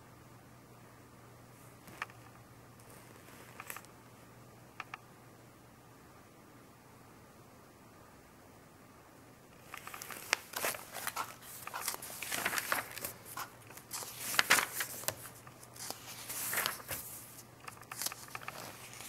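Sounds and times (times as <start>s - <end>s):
magazine pages rustling: 2.8s - 3.9s, 9.6s - 19.0s.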